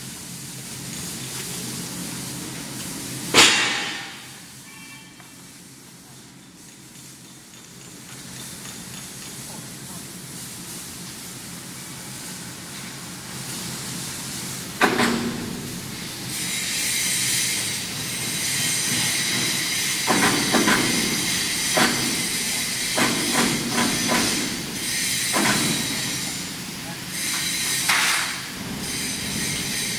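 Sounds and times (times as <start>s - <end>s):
hissing machine noise: 0.0s - 29.9s.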